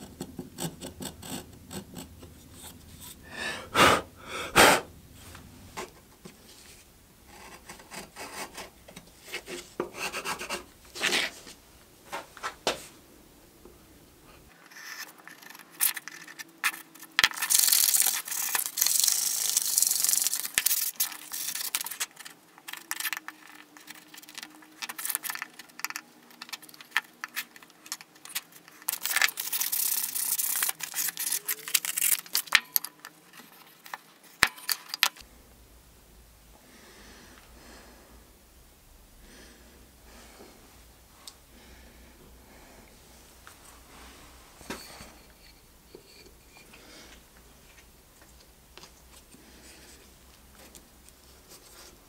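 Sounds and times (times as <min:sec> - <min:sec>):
steel tool scraping wood: 0:00.2 - 0:03.2
low steady hum: 0:35.2 - 0:52.0.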